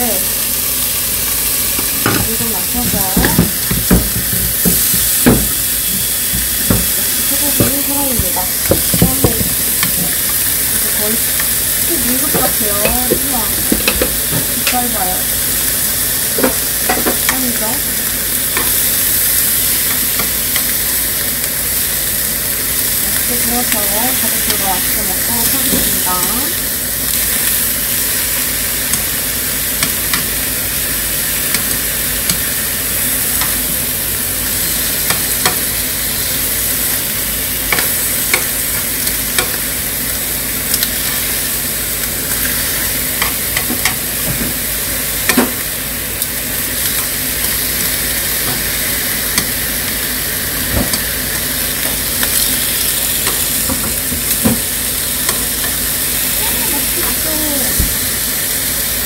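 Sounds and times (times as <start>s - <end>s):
meat sizzling in a frying pan: 0.0s - 59.0s
chopsticks clicking on pan: 29.8s - 30.4s, 31.5s - 32.5s, 35.0s - 35.7s, 37.7s - 39.6s.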